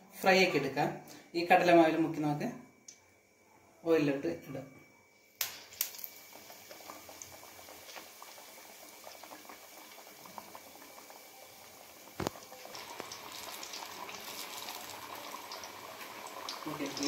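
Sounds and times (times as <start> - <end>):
food sizzling in hot oil: 5.4 - 17.0.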